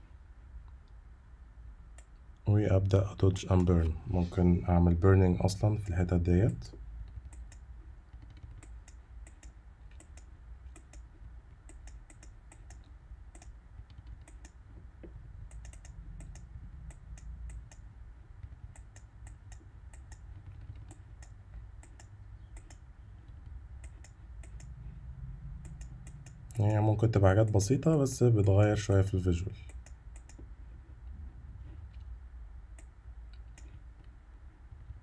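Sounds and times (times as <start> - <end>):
low steady hum: 0.0 - 35.0
computer keyboard clicks: 15.5 - 16.5, 20.8 - 22.8.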